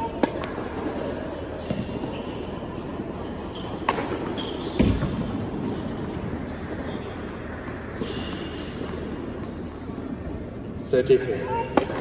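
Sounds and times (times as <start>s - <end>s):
tennis ball struck by rackets: 0.1s - 0.6s, 3.8s - 5.4s, 11.7s - 12.0s.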